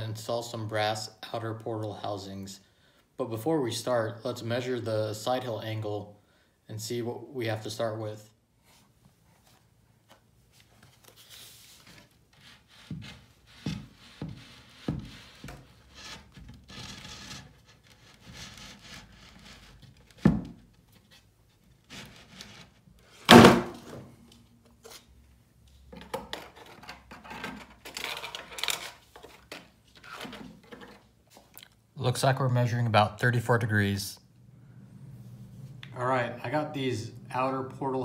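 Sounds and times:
toy car crashing onto its side: 0:23.3 - 0:23.9
wooden board knocking and scraping: 0:23.3 - 0:24.0
heavy thud: 0:23.3 - 0:24.1.

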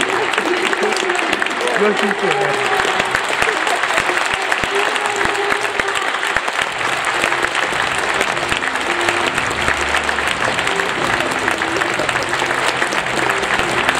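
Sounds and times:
stadium crowd applauding: 0:00.0 - 0:13.9
faint music with held notes: 0:06.5 - 0:13.9.

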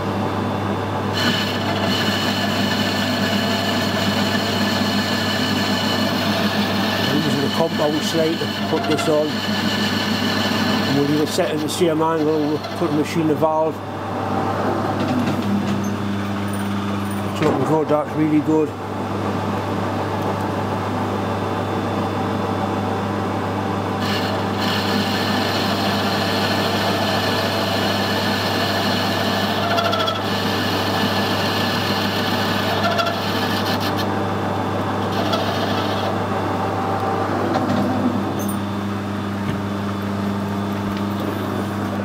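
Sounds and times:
lathe motor hum: 0:00.7 - 0:15.6, 0:23.8 - 0:39.4
cutting tool scraping metal: 0:01.2 - 0:13.0, 0:24.0 - 0:34.1, 0:35.1 - 0:36.1.

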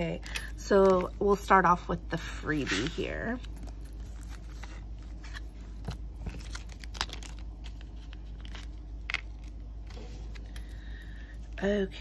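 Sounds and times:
plastic packaging crinkling: 0:02.9 - 0:10.5.

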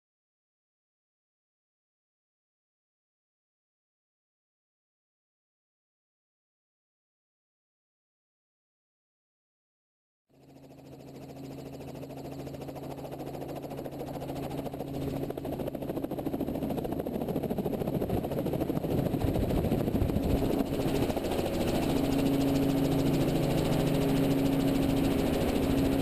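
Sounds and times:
helicopter running: 0:10.3 - 0:26.0.

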